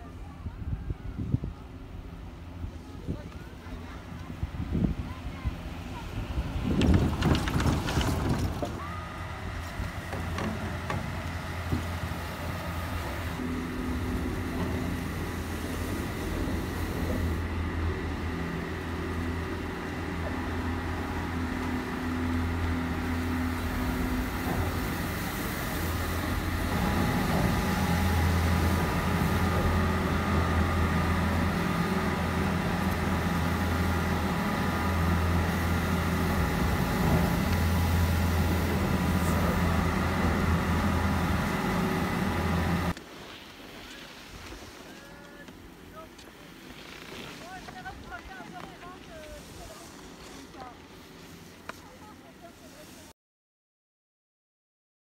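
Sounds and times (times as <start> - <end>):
chairlift mechanical hum: 1.5 - 53.1
chairlift rattling over wheels: 6.5 - 42.9.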